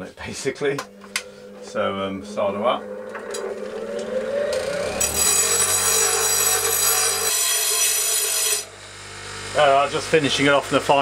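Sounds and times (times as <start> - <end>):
steel grinding on wheel: 0.5 - 8.7
bench grinder motor humming: 0.6 - 10.9.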